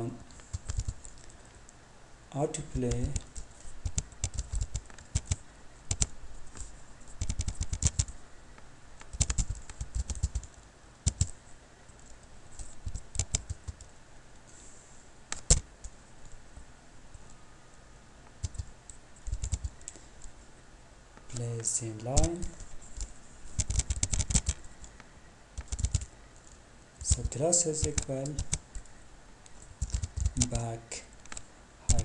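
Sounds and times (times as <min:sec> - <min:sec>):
typing on computer keyboard: 0:00.5 - 0:01.3, 0:02.9 - 0:06.1, 0:07.2 - 0:08.1, 0:09.1 - 0:11.4, 0:12.8 - 0:13.9, 0:18.4 - 0:19.8, 0:22.2 - 0:24.6, 0:25.6 - 0:26.1, 0:27.0 - 0:28.7, 0:29.8 - 0:30.6, 0:31.3 - 0:32.0.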